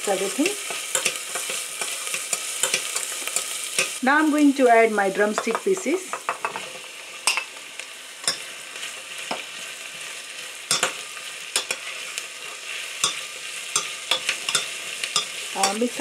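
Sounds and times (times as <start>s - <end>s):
vegetables sizzling in hot oil: 0.0s - 16.0s.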